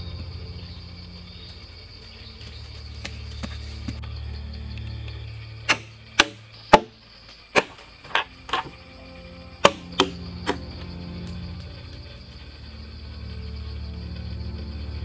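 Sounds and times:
blade chopping wooden log: 0:05.7 - 0:07.0, 0:07.6 - 0:08.7, 0:09.6 - 0:10.6.

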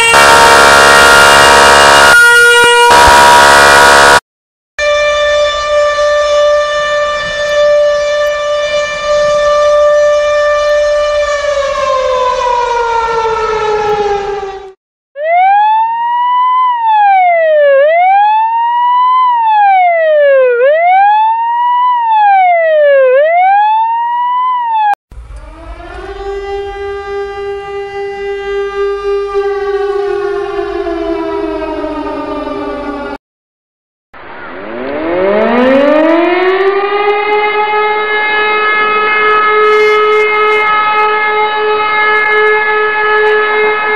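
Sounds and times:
ambulance siren: 0:00.0 - 0:04.2, 0:04.8 - 0:33.2, 0:34.6 - 0:43.9
fire truck siren: 0:00.0 - 0:04.2, 0:04.8 - 0:33.2, 0:34.2 - 0:43.9
wailing ambulance siren: 0:00.0 - 0:04.2, 0:04.8 - 0:33.2, 0:34.7 - 0:43.9
low rumble: 0:25.1 - 0:28.4.

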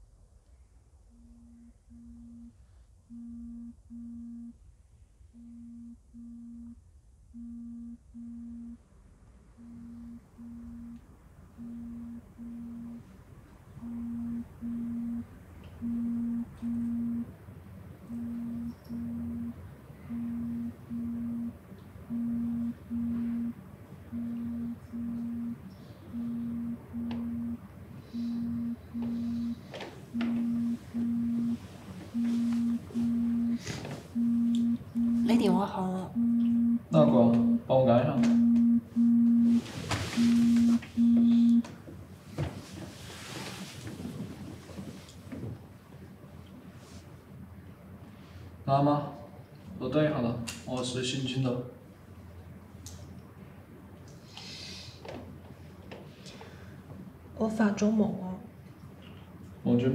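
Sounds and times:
phone buzzing in short pulses: 0:38.3 - 0:41.7.

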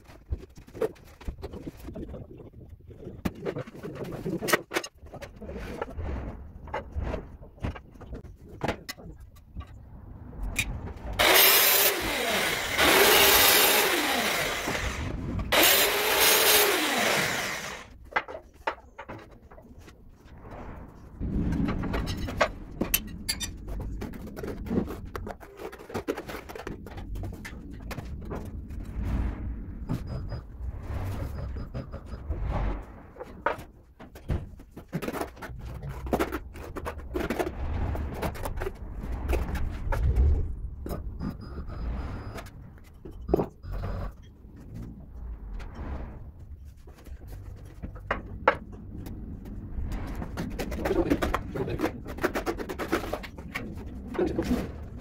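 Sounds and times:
loud machine noise: 0:11.2 - 0:17.9.

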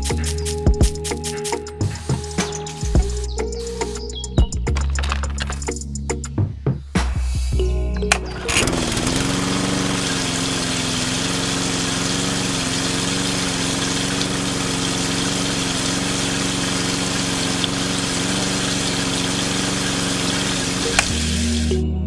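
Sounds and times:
spray gun jetting water: 0:00.0 - 0:04.2, 0:08.2 - 0:21.8
electric pump motor humming: 0:08.1 - 0:21.7.

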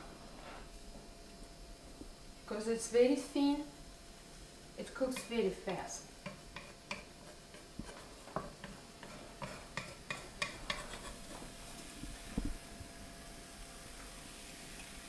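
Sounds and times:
batter sizzling in frying pan: 0:03.9 - 0:15.0
utensil clicks and taps on pan: 0:05.1 - 0:05.4, 0:06.2 - 0:11.1.

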